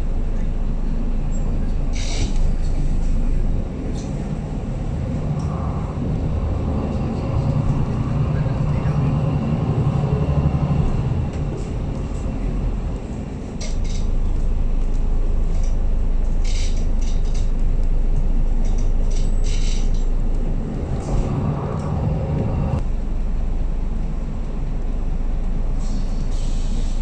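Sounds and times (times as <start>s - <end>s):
bus engine and road rumble: 0.0s - 27.0s
high whine: 3.0s - 14.0s.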